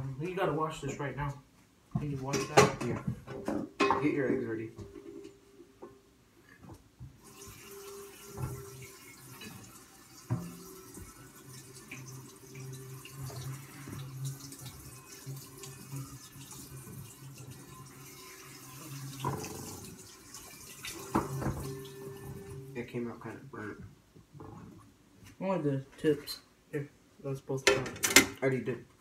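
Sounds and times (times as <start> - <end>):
tap running into sink: 7.2 - 22.7.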